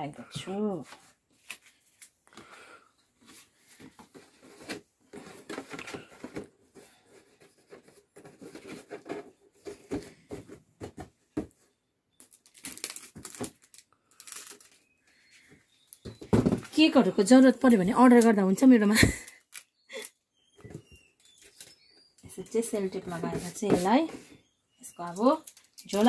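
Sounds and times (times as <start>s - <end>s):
packing tape tearing off roll: 12.2s - 14.8s
cardboard box rustling and tapping: 23.0s - 24.4s.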